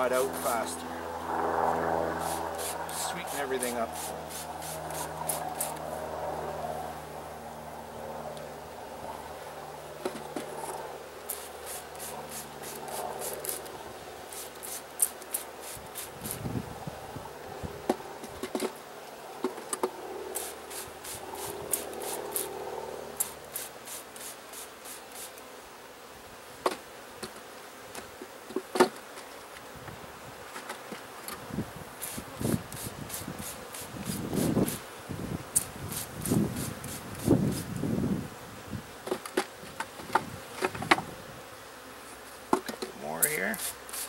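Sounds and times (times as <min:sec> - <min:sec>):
honeybees buzzing: 0:00.0 - 0:44.0
scratchy clicks of hive frames: 0:10.0 - 0:16.4, 0:17.9 - 0:18.8, 0:19.4 - 0:22.5, 0:39.0 - 0:41.1, 0:42.2 - 0:44.0.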